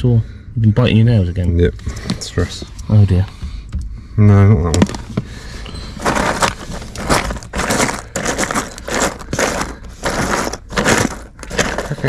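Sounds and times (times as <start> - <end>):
plastic clips clattering in box: 6.0 - 12.0.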